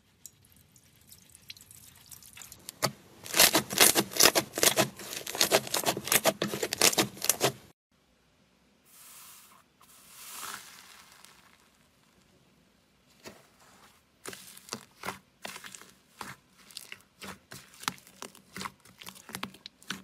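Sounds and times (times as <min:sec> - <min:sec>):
soft rustle: 0:08.9 - 0:12.4, 0:13.0 - 0:18.4
hands crunching crumbly material: 0:10.0 - 0:12.2.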